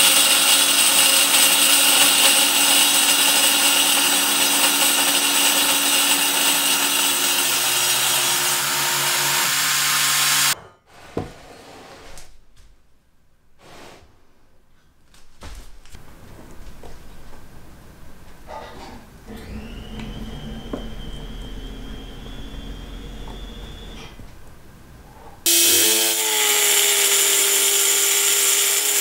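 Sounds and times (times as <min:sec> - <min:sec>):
table saw cutting wood: 0:00.0 - 0:10.6, 0:19.3 - 0:24.2, 0:25.4 - 0:29.0
steady hum: 0:19.1 - 0:25.5.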